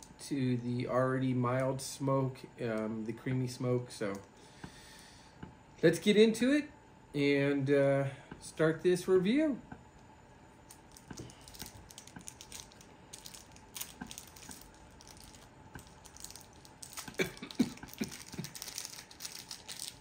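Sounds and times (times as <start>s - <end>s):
cellophane crinkling: 10.7s - 20.0s.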